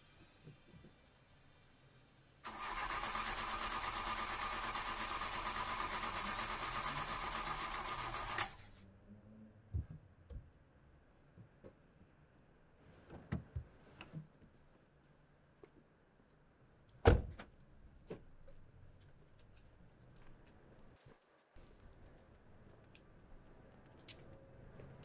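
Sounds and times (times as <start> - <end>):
starter motor cranking engine: 2.4 - 8.8.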